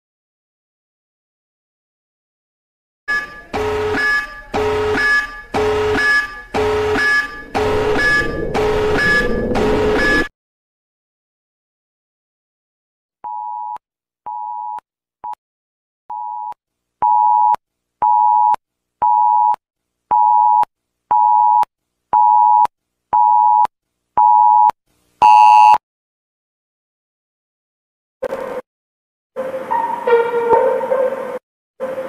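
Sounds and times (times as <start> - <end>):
electronic alarm beeping: 3.1 - 10.3, 22.2 - 25.8.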